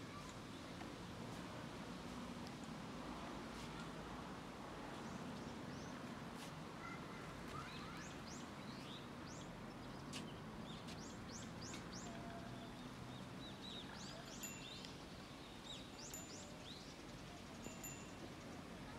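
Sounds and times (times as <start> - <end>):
small birds chirping: 7.6 - 18.9.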